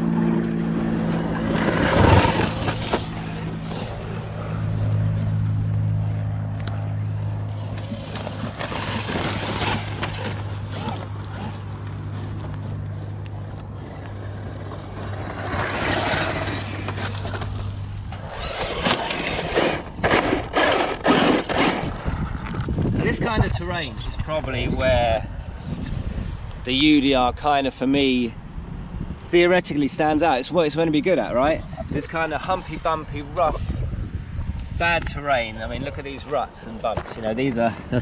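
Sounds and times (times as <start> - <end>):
steady low hum: 0.0 - 24.5
rc truck motor: 7.5 - 22.6.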